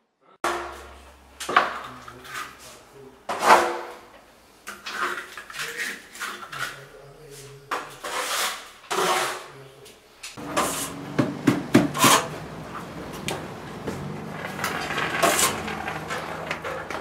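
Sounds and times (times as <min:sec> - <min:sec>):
trowel scraping wet plaster: 0:04.7 - 0:09.6, 0:10.4 - 0:11.0, 0:11.8 - 0:12.4, 0:14.4 - 0:17.0.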